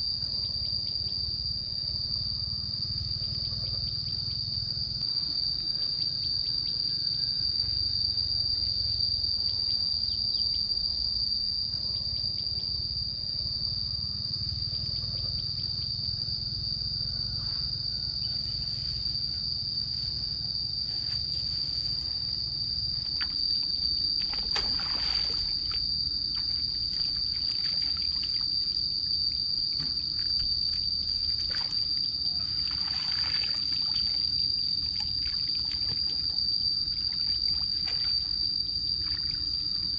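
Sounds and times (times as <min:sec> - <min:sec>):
high-pitched insect drone: 0:00.0 - 0:39.9
feet wading through muddy water: 0:23.1 - 0:28.5, 0:31.0 - 0:34.3.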